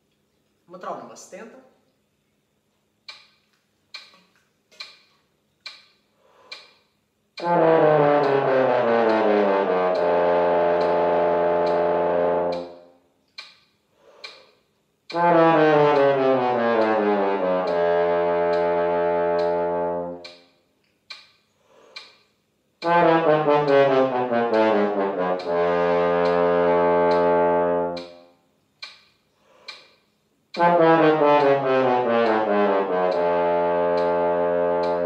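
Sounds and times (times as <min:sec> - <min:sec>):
metronome clicking: 0:03.0 - 0:15.3, 0:15.9 - 0:30.7, 0:31.3 - 0:35.0
french horn descending run: 0:07.4 - 0:12.8, 0:15.1 - 0:20.3, 0:22.8 - 0:28.2, 0:30.6 - 0:35.0.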